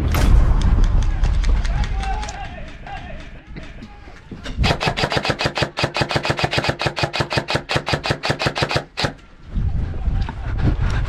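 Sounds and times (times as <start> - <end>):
airsoft rifle firing full-auto: 4.6 - 9.2.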